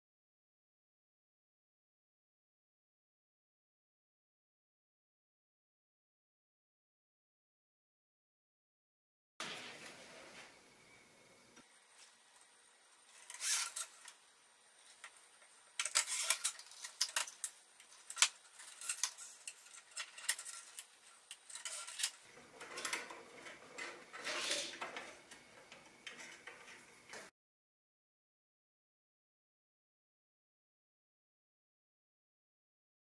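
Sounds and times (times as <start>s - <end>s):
rubbing and handling noise: 11.9s - 27.3s
light metallic clicks and scrapes: 15.8s - 27.3s.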